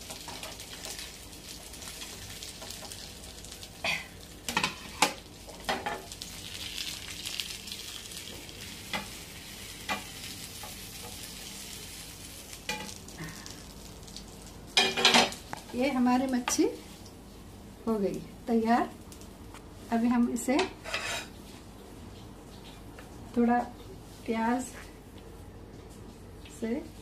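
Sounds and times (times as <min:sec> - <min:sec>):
oil sizzling in a frying pan: 0:00.0 - 0:22.0
wooden spatula scraping a pan: 0:20.8 - 0:21.3.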